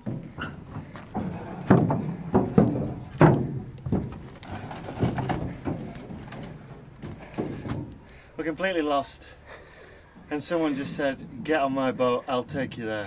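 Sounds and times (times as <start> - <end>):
heavy knocks on wooden boat: 0.0 - 4.3.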